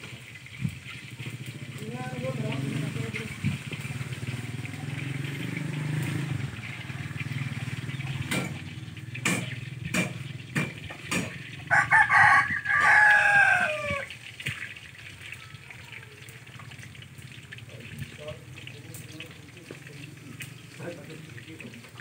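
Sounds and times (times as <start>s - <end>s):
sharp knocks: 8.2s - 11.5s
rooster crowing: 11.6s - 14.1s.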